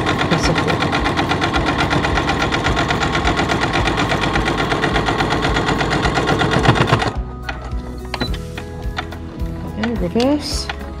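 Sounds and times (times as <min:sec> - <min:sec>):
sewing machine stitching: 0:00.0 - 0:07.2.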